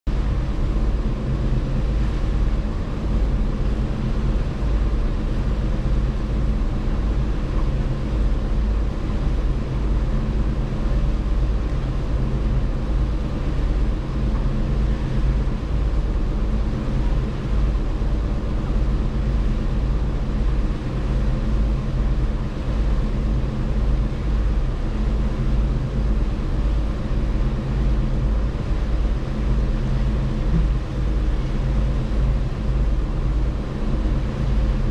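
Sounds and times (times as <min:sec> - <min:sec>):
ship engine drone: 0:00.1 - 0:34.9
fluttering low rumble: 0:24.1 - 0:34.9.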